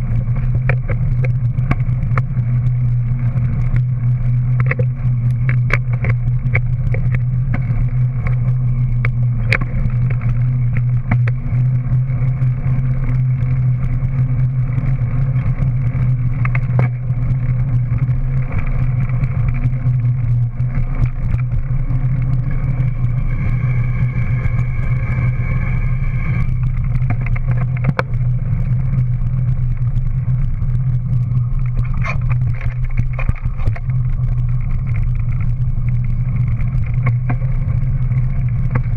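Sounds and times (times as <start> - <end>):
bike clicks and rattles: 0.0 - 38.9
bike tyre rolling on concrete: 0.0 - 38.9
high whine: 0.0 - 38.9.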